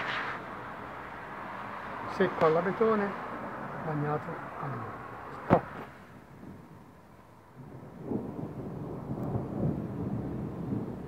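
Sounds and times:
thunder rumbling: 6.2 - 11.0.

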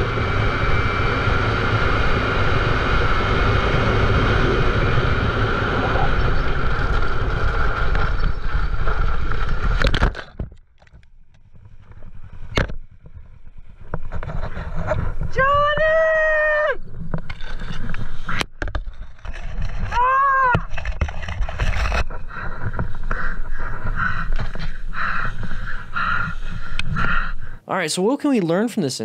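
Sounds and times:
motorcycle engine at speed: 0.0 - 10.5
wind noise: 0.0 - 10.6, 11.5 - 27.6.

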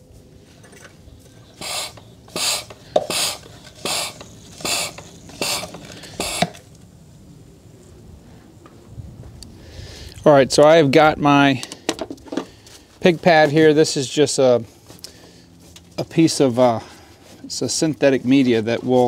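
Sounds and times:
hand pump strokes: 0.6 - 6.6.

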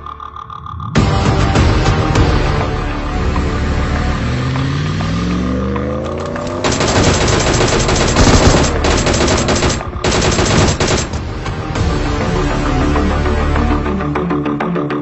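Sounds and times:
music: 0.0 - 15.0
automatic gunfire: 6.6 - 11.3.

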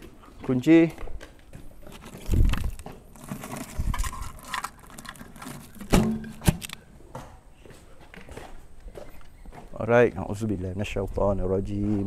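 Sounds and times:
paper tape crinkling: 1.8 - 6.8.

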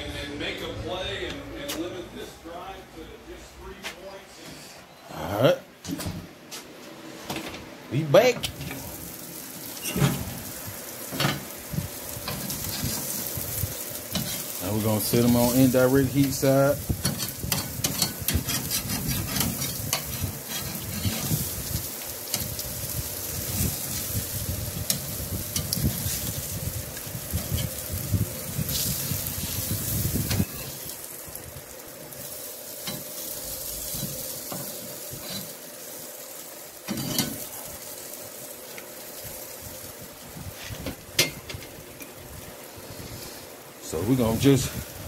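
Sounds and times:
fish sizzling on grill: 8.2 - 45.0
spatula scraping grill grate: 11.0 - 31.0, 32.1 - 38.8.

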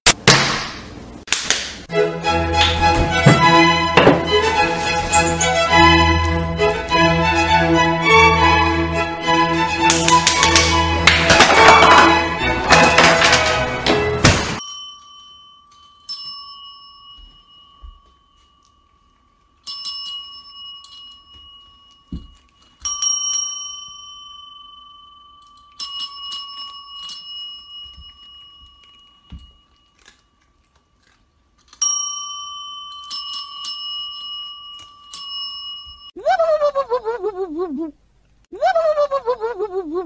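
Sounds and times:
service bell dinging: 14.6 - 19.0, 22.8 - 29.6, 31.8 - 36.2.

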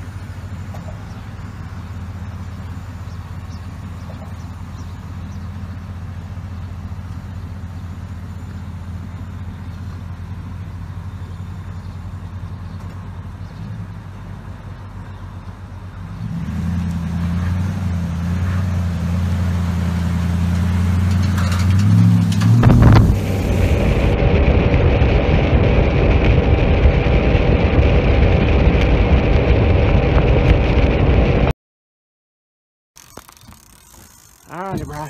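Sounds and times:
truck engine humming: 0.0 - 27.2, 33.0 - 35.0
noisy rush: 15.8 - 31.5.

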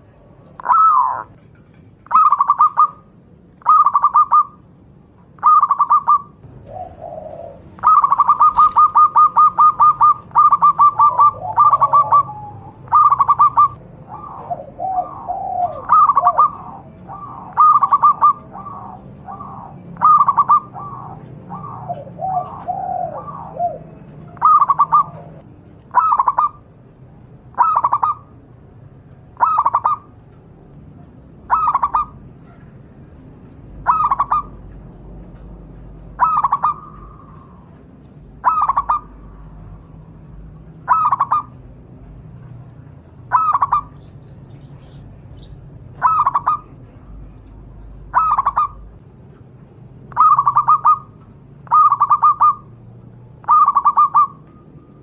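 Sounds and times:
dove rolling coo: 0.0 - 1.4, 2.0 - 3.0, 3.6 - 4.6, 5.4 - 26.6, 27.5 - 28.2, 29.4 - 30.0, 31.5 - 32.6, 33.8 - 34.6, 36.1 - 37.7, 38.4 - 39.2, 40.9 - 41.5, 43.3 - 43.9, 46.0 - 46.7, 48.1 - 48.8, 50.1 - 51.1, 51.7 - 52.7, 53.4 - 54.4.

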